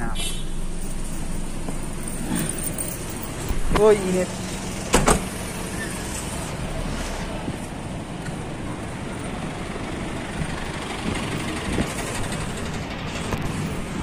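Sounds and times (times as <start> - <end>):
roadside traffic rumble: 0.0 - 14.0.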